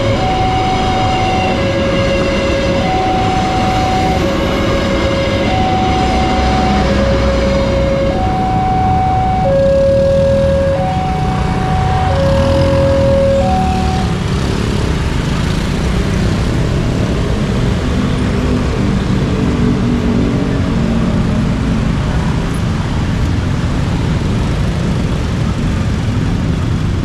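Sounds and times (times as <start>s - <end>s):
scooters and motorcycles pulling away: 5.5s - 16.7s.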